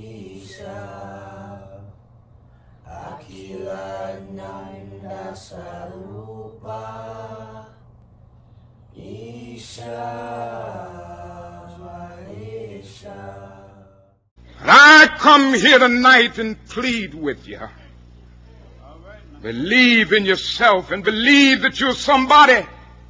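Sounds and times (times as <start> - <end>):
steady low drone: 0.0 - 14.6
wordless chanting voices: 0.0 - 15.8.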